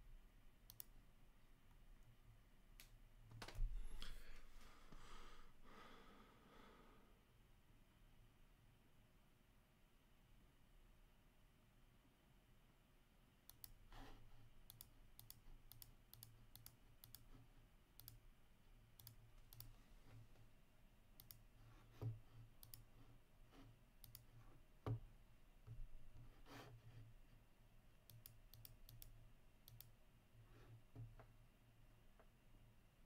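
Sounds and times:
keyboard and mouse clicking: 0.7 - 0.9, 13.5 - 13.8, 14.6 - 17.3, 18.0 - 18.2, 19.0 - 19.8, 21.2 - 21.5, 22.6 - 22.9, 24.0 - 24.3, 28.1 - 30.0.

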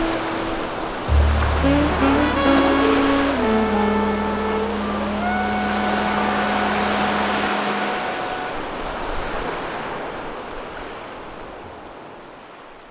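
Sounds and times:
background music: 0.0 - 8.6
waves breaking on beach: 0.0 - 12.9.

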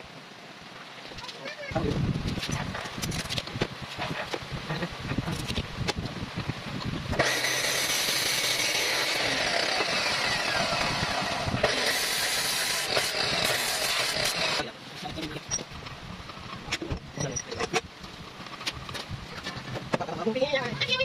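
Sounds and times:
cut-off saw grinding metal: 7.2 - 14.7.

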